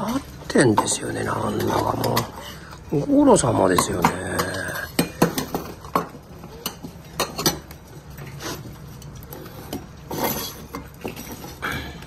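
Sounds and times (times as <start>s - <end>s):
dishes and spoon clinking: 0.0s - 12.0s.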